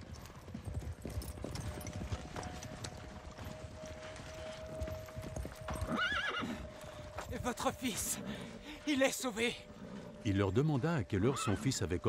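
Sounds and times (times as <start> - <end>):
horse hoofbeats on sand: 0.0 - 8.2.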